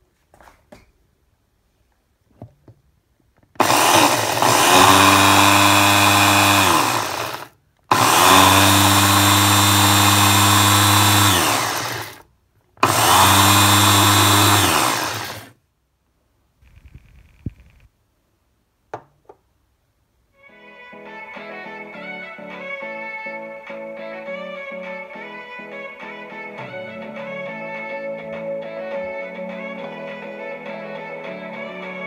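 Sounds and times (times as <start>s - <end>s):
electric food chopper grinding: 3.6s - 12.2s, 12.8s - 15.6s.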